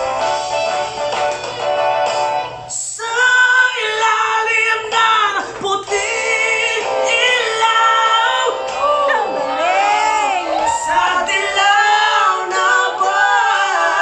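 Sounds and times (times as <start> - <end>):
man singing ballad: 2.7 - 9.2.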